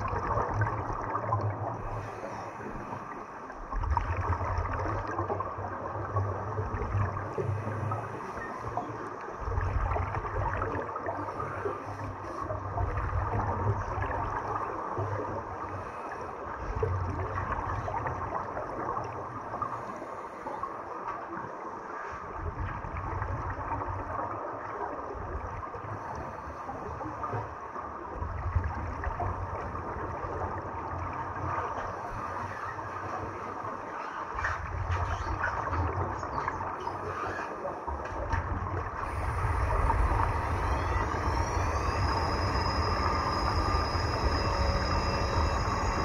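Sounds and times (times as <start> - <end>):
scuba bubbles gurgling underwater: 0.0 - 46.0
low rumbling swell: 38.8 - 46.0.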